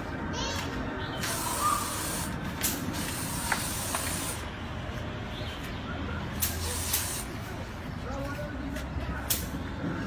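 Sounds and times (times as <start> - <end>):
aerosol spray can hissing: 3.0 - 4.4.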